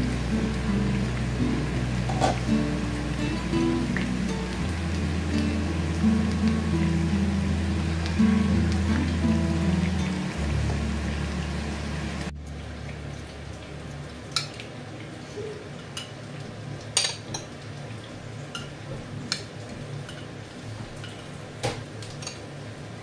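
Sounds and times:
low steady hum: 0.0 - 19.3.

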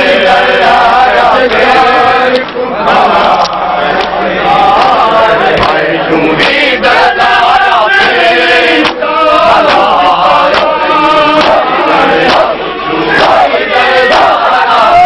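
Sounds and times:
crowd of men chanting: 0.0 - 15.0
hands slapping chests: 8.8 - 9.0, 10.5 - 10.8, 11.4 - 11.6.

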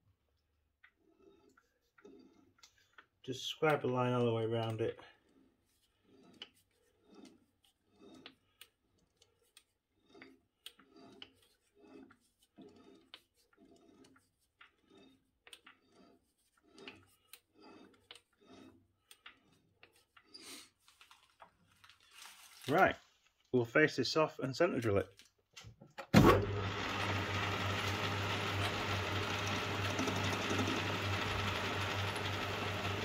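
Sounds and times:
lathe tool scraping steel: 5.3 - 20.2, 26.6 - 33.0.

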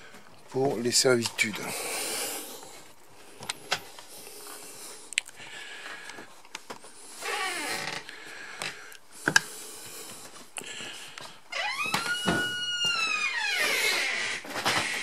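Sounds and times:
falling creak: 7.2 - 8.1, 11.5 - 15.0.

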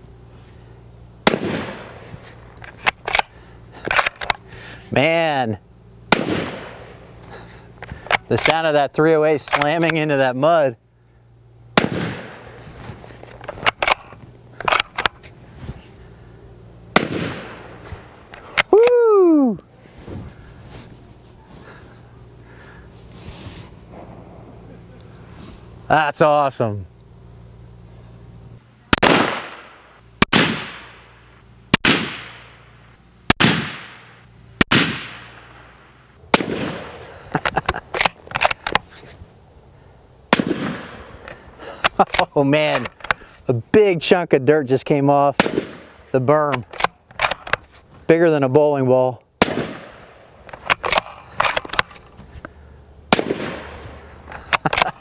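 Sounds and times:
rifle shots with echo: 1.2 - 2.0, 6.1 - 6.9, 11.8 - 12.6, 16.9 - 17.8, 28.9 - 32.6, 33.4 - 37.0, 40.3 - 41.0, 45.4 - 46.0, 49.4 - 50.2, 53.1 - 53.8
rifle bolt metallic clicks: 2.6 - 4.4, 9.4 - 10.0, 13.3 - 15.2, 41.8 - 43.3, 46.5 - 47.6, 50.4 - 52.1, 54.3 - 55.0.

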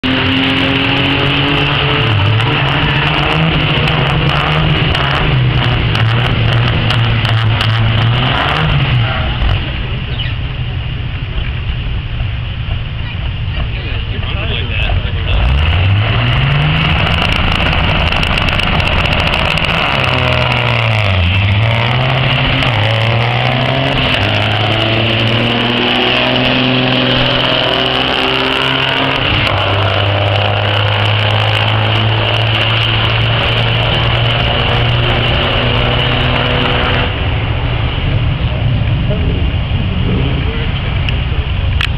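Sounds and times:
diesel truck engines revving: 0.0 - 41.9
truck passing by: 13.5 - 41.6.

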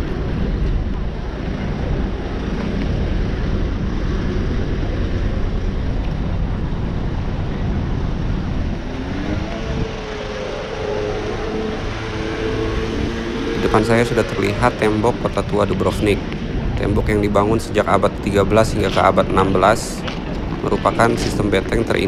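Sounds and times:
road traffic rushing past: 0.0 - 22.0
pitched engine note: 9.0 - 15.8.

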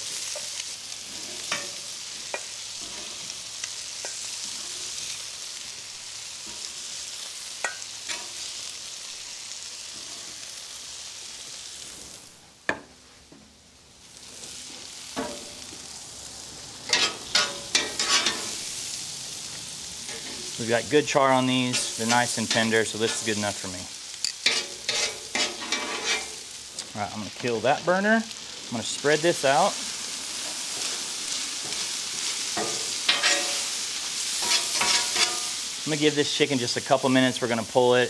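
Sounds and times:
meat and vegetables sizzling on griddle: 0.0 - 38.0
metal spatula scraping: 0.3 - 3.4, 16.9 - 18.6, 20.0 - 20.7, 21.6 - 23.6, 24.2 - 26.4, 32.5 - 35.6
tongs clacking: 24.2 - 26.9, 32.6 - 33.7, 34.4 - 35.6.

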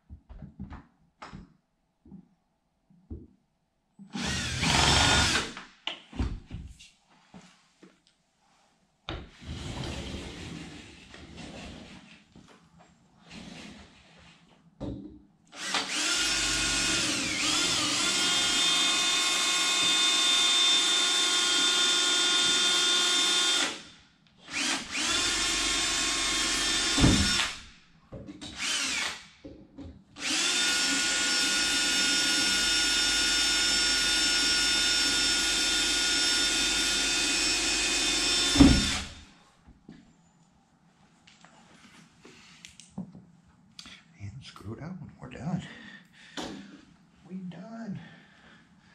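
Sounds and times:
cordless drill drilling: 4.1 - 5.6, 15.5 - 23.9, 24.5 - 27.7, 28.6 - 29.3, 30.2 - 39.3.

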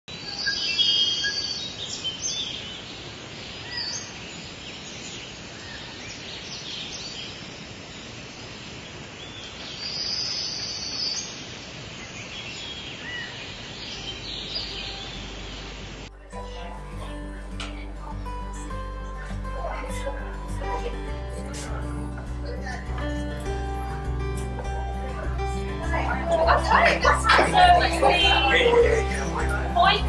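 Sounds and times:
birds chirping and whistling: 0.1 - 2.9, 12.0 - 15.8
steady outdoor hiss: 0.1 - 30.0.

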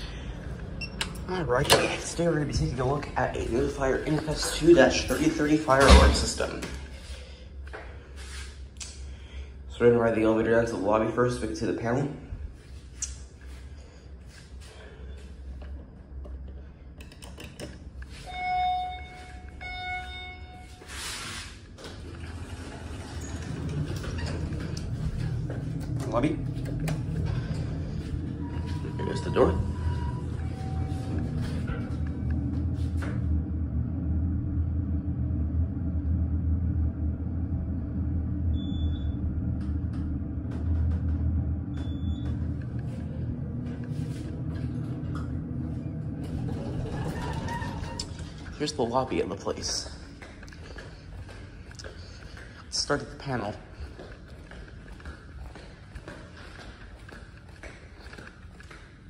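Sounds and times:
elevator doors sliding open: 0.0 - 7.1, 17.0 - 49.9
elevator chime: 18.1 - 21.2, 26.6 - 32.5, 41.6 - 48.4
short high beep: 18.2 - 20.9.

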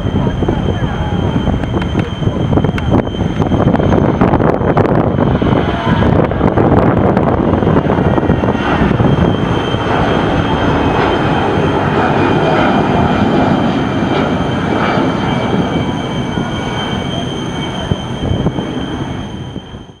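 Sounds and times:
jet engines rumbling and whining: 0.0 - 20.0.

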